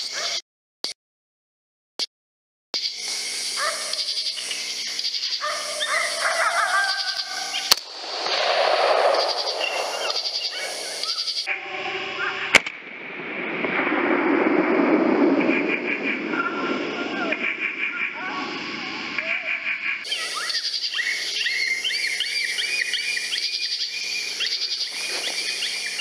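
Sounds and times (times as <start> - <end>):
sharp crack: 7.6 - 11.5, 12.5 - 17.8.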